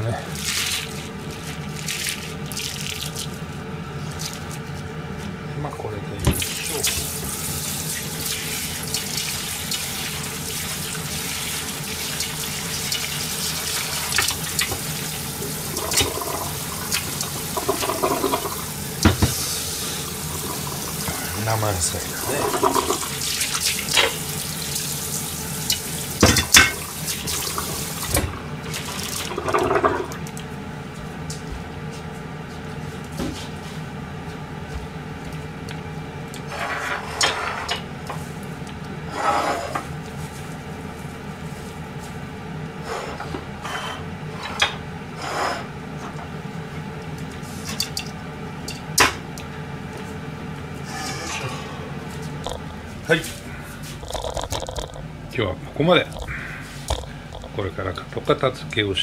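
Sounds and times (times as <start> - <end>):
tap water running into sink: 6.3 - 19.4, 20.0 - 30.2.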